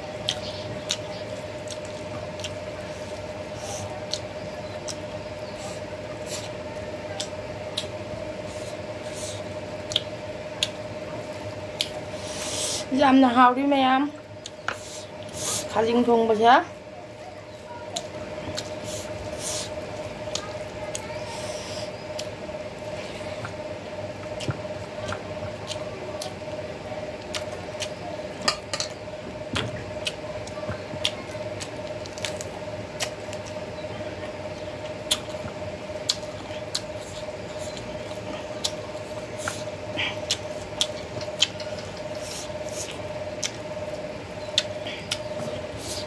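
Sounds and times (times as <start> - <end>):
steady hum: 0.0 - 46.0
wet chewing and lip smacking: 0.2 - 8.0, 8.6 - 10.8, 27.2 - 28.0, 29.6 - 33.6, 34.8 - 46.0.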